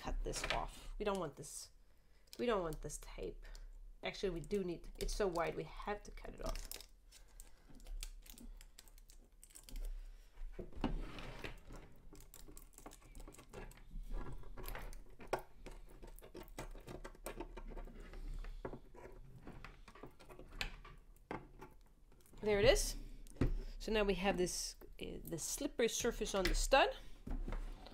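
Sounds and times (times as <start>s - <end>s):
plastic clicks and rustles: 4.4s - 10.8s, 11.4s - 23.6s.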